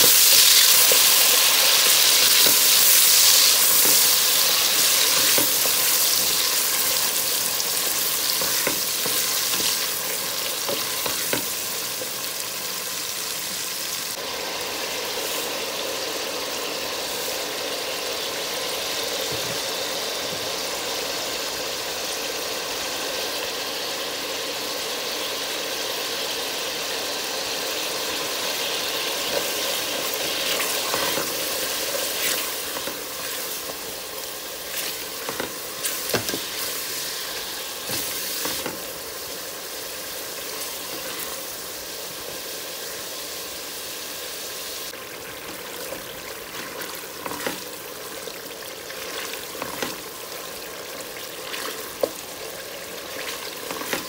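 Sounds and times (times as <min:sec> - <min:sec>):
masala sizzling in oil: 0:00.0 - 0:54.0
wooden spatula scraping a pot: 0:07.8 - 0:12.2.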